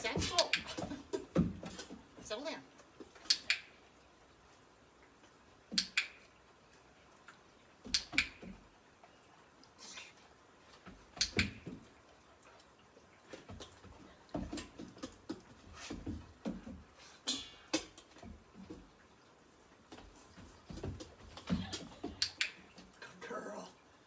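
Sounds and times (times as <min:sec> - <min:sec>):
dog claws clicking on wooden boards: 0:10.9 - 0:11.9.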